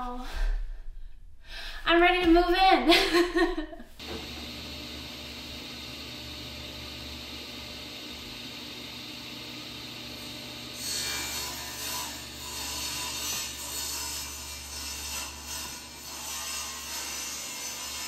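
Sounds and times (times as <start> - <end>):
table saw whirring: 4.0 - 18.0.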